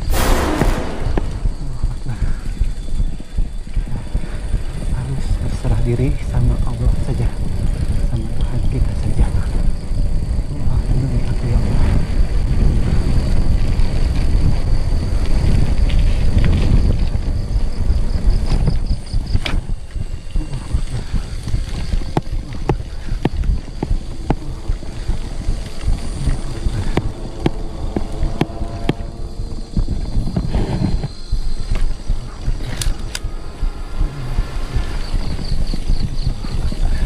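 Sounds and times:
insects chirring: 0.0 - 37.0
wind rumble: 0.0 - 37.0
microphone handling noise: 20.6 - 36.8.

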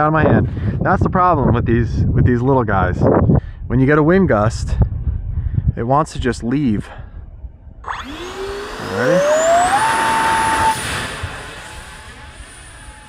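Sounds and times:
electric motor fan whine: 7.8 - 13.0.

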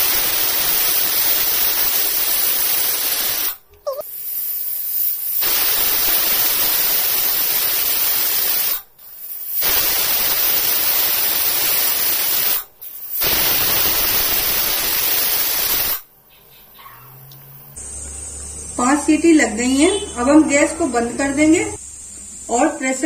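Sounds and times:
pressure cooker whistling steam: 0.0 - 16.0.

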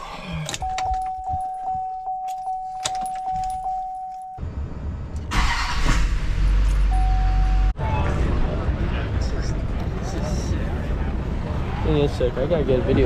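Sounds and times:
keys jangling: 0.5 - 4.3
warning chime: 0.6 - 4.4, 6.9 - 7.7.

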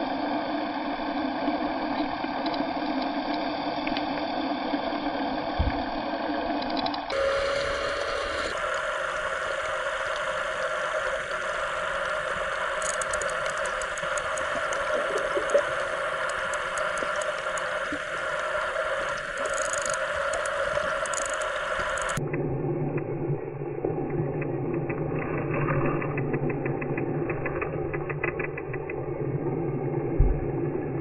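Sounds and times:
engine drone underwater: 0.0 - 31.0
faint high ticks: 1.9 - 4.2, 6.6 - 22.2.

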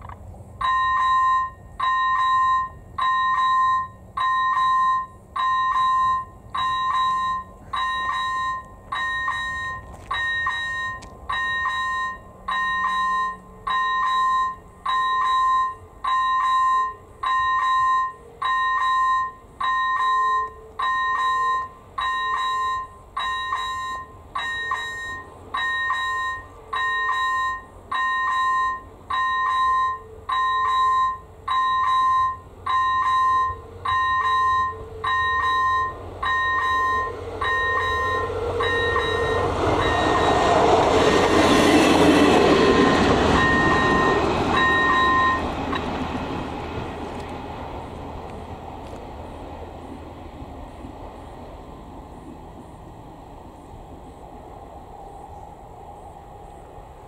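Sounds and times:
level crossing bell ringing: 0.6 - 40.4.

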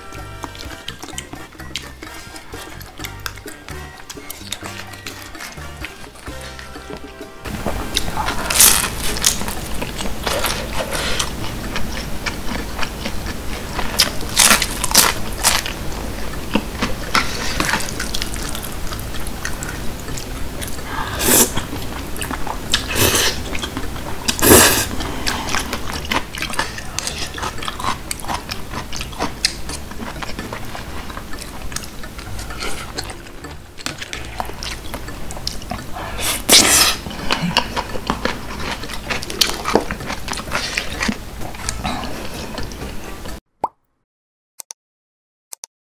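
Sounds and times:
wet chewing of noodles: 0.0 - 43.4
loud slurps: 20.9 - 21.6, 22.7 - 23.5, 24.3 - 25.9, 36.0 - 37.7.

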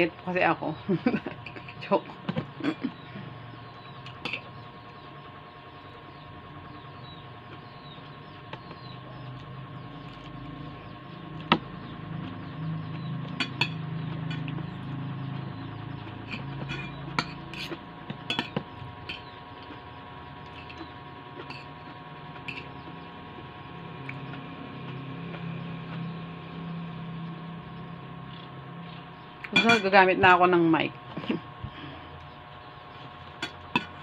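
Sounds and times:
steady background hum: 0.0 - 34.0
cutlery clinking on ceramic bowl: 29.5 - 29.9.

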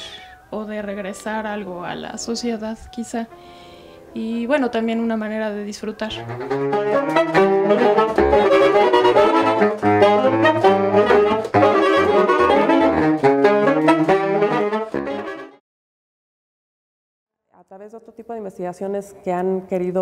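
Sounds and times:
saxophone quartet playing: 6.1 - 15.6.

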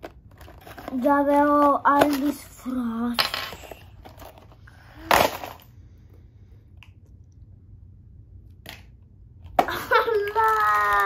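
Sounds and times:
plastic pieces and packaging handled: 0.0 - 2.4, 9.7 - 11.0.

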